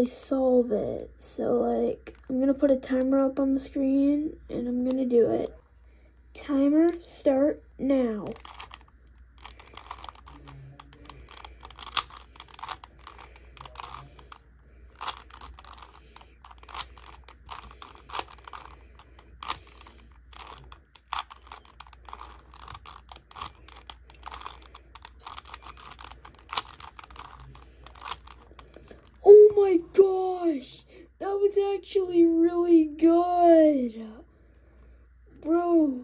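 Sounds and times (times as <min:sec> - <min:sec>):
puzzle cube clicking: 0:08.2 - 0:29.2.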